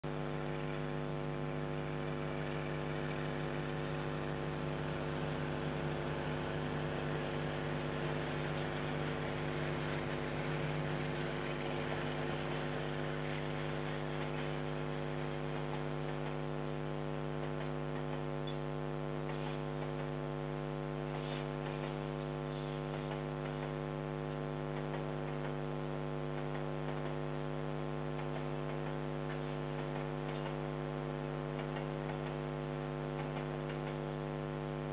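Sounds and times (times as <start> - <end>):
electrical hum: 0.0 - 34.9.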